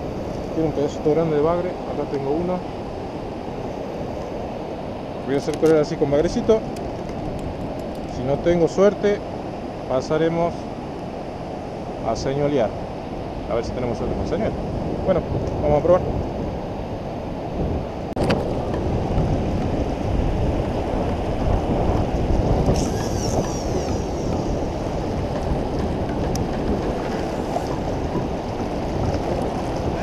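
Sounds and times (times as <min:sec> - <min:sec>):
river current rushing: 0:00.0 - 0:30.0
wind buffeting microphone: 0:00.0 - 0:30.0.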